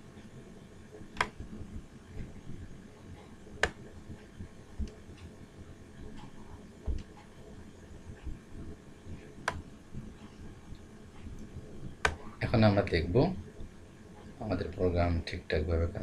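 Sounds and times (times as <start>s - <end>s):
low room hum: 0.0s - 16.0s
soft low thumps: 1.1s - 10.4s
computer mouse clicks: 1.2s - 1.4s, 9.4s - 9.6s.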